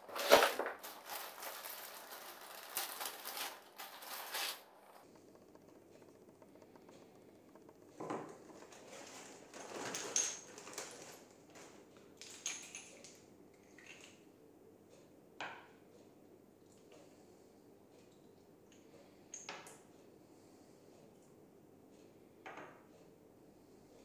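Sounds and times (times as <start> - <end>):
plastic bag rustling: 0.0 - 5.1, 8.2 - 11.8.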